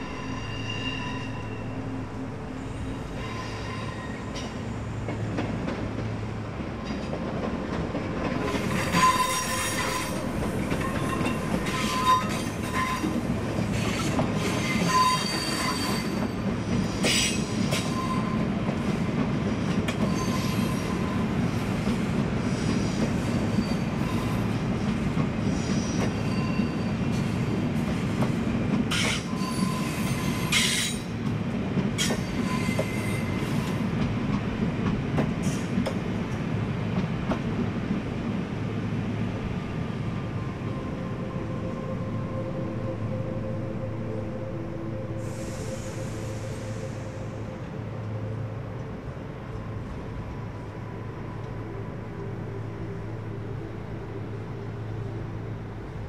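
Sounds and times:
train wheels squealing: 0.0 - 2.0, 2.6 - 5.2, 8.3 - 28.2, 28.9 - 31.2, 32.0 - 34.0, 40.2 - 48.5
train rolling rumble: 0.0 - 56.0.

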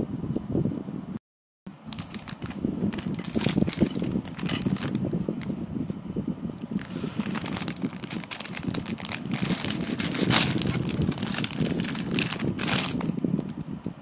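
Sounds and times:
plastic wrapper crinkling: 1.9 - 5.5, 6.8 - 13.5.

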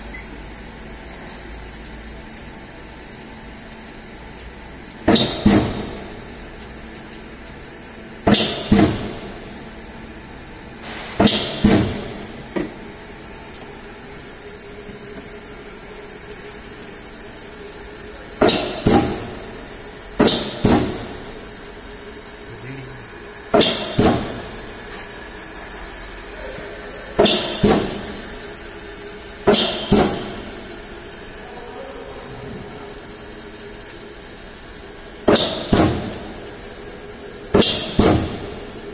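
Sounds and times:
machine humming: 0.0 - 38.9
stamping press metallic clanks: 10.8 - 12.2, 20.2 - 21.1, 35.3 - 36.2.

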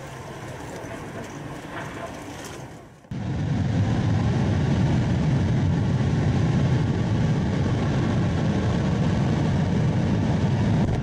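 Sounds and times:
rocket engine firing: 3.1 - 11.0.

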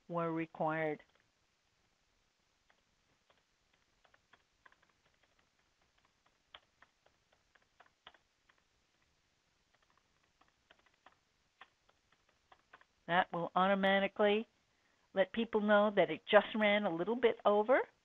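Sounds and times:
typing on computer keyboard: 2.6 - 9.1, 9.7 - 12.9.

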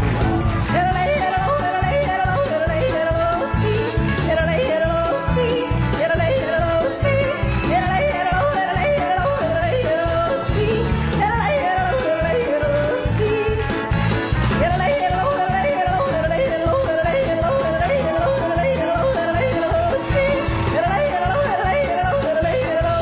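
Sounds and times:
instrumental backing with beat: 0.0 - 23.0.

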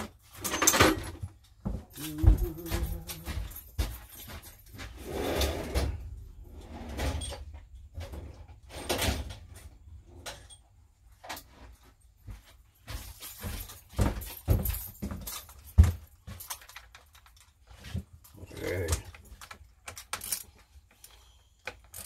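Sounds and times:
objects knocking and clattering: 0.0 - 5.0, 12.8 - 22.0.

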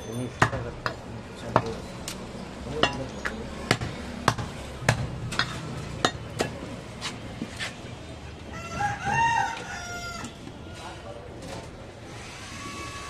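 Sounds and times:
cleaver chopping ribs on wood: 3.7 - 5.6.

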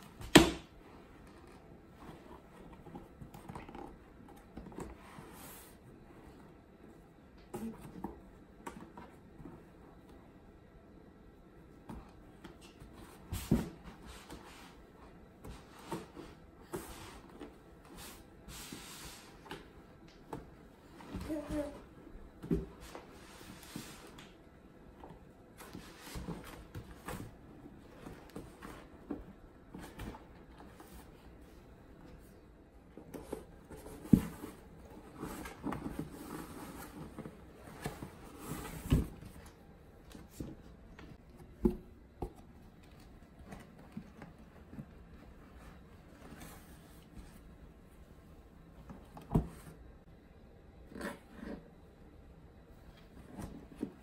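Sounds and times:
scraping and rustling on cardboard: 0.9 - 10.0, 12.4 - 19.7, 20.9 - 24.4, 25.0 - 41.8, 42.9 - 47.6.

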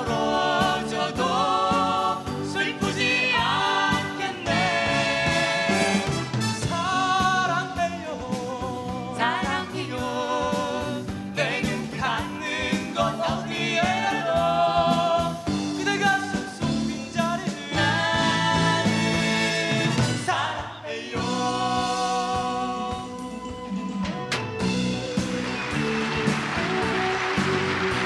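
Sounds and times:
vocal trio singing: 0.0 - 23.4
acoustic guitar: 21.2 - 28.0.

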